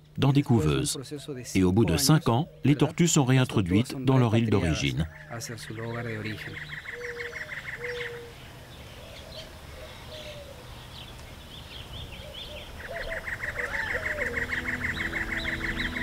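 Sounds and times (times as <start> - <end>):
small birds chirping: 0.0 - 16.0
rapid pulsing bird trill: 1.7 - 10.4, 12.1 - 16.0
soft background music: 13.9 - 16.0.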